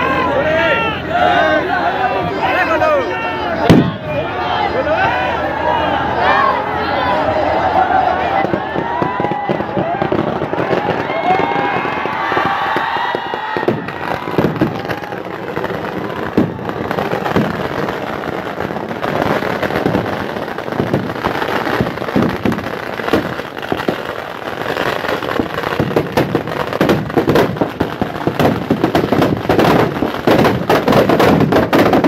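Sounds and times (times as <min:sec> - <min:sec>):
firecrackers cracking and banging: 0:03.6 - 0:04.1, 0:08.3 - 0:32.0.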